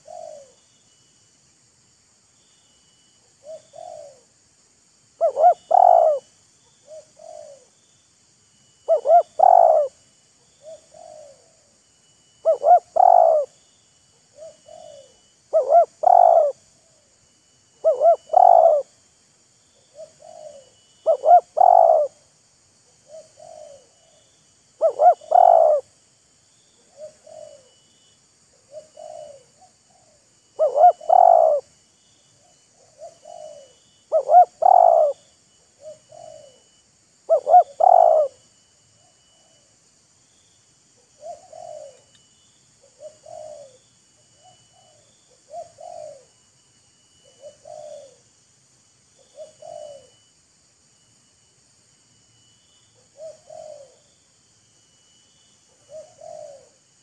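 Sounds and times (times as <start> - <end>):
doves cooing: 0.0 - 0.6, 3.4 - 4.3, 5.2 - 7.7, 8.8 - 10.0, 10.6 - 11.7, 12.4 - 13.6, 14.3 - 17.1, 17.8 - 19.0, 19.8 - 22.2, 23.0 - 24.2, 24.8 - 25.9, 26.8 - 27.8, 28.5 - 31.7, 32.4 - 39.7, 41.0 - 42.1, 42.8 - 46.4, 47.1 - 48.2, 49.2 - 50.2, 53.1 - 54.1, 55.7 - 56.9.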